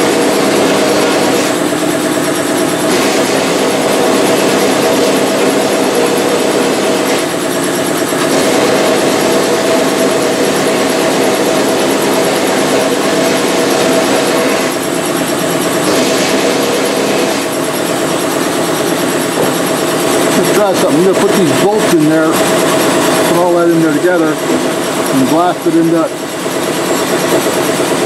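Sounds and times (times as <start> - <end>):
machine hum: 0.0 - 28.0
loud hiss of blasting slurry: 2.9 - 3.8.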